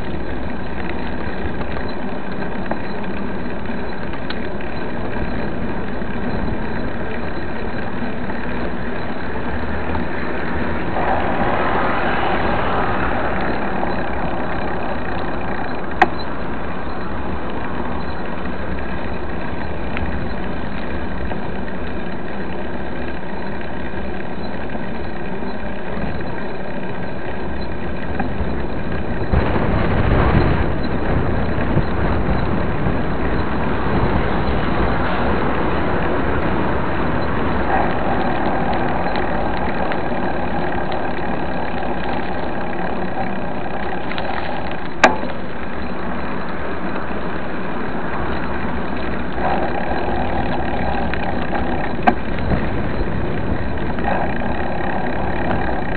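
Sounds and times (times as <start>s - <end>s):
low rumbling vehicle passing: 3.7s - 22.0s, 24.9s - 55.9s
cars passing: 9.0s - 18.0s.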